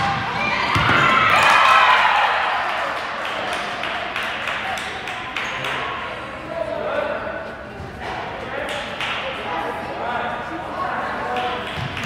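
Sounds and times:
volleyball struck with thud: 0.0s - 1.2s
crowd shouting and cheering: 0.0s - 6.0s
scattered clapping: 2.7s - 5.9s, 8.6s - 9.3s.

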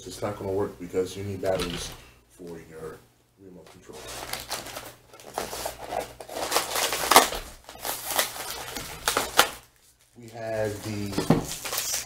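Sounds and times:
foam packaging creaking and crinkling: 3.6s - 12.0s.

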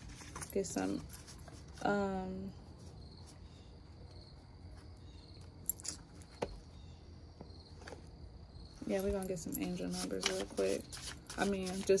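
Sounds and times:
cricket chirping: 3.0s - 9.7s.

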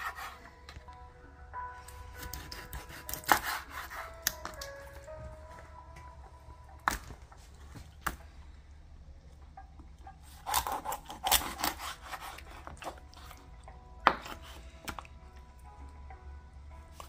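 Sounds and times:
knife sawing through fish: 0.0s - 0.4s, 2.2s - 4.4s, 10.4s - 12.9s.

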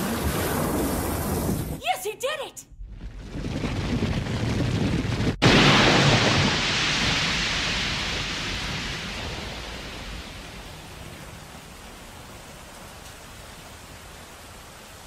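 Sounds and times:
rushing hissing spray: 5.4s - 12.1s.

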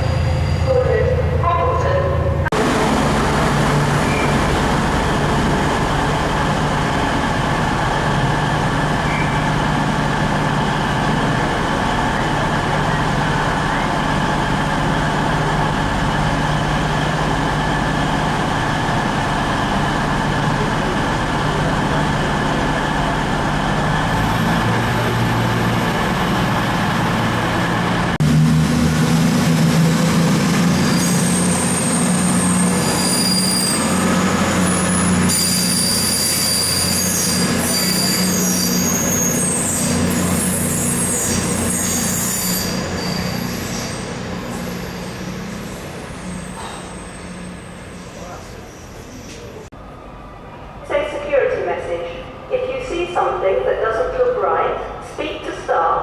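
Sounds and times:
train running: 0.0s - 56.0s.

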